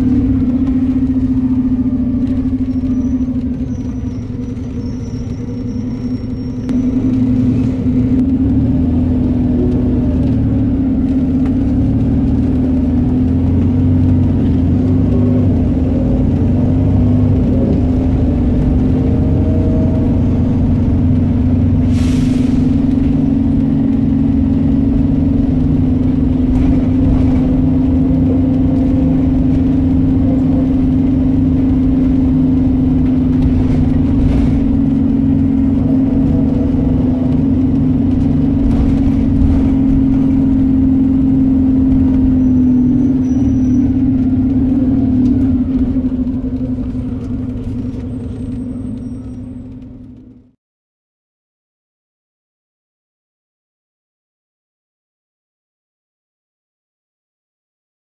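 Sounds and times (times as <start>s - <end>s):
bus diesel engine droning: 0.0s - 50.5s.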